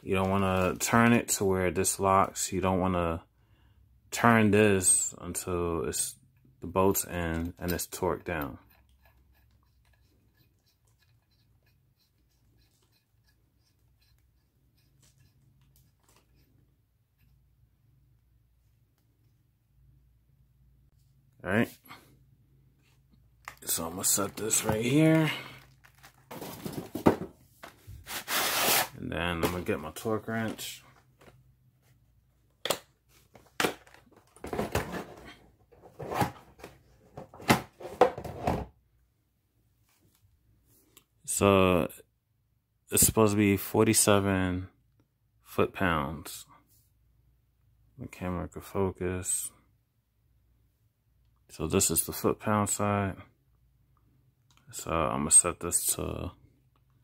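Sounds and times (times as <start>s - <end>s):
light scratching and ticks of handling metal parts: 6.3s - 17.6s
plastic packaging crinkling: 23.5s - 27.1s
plastic case rustling and knocking: 25.6s - 27.8s, 33.3s - 38.7s.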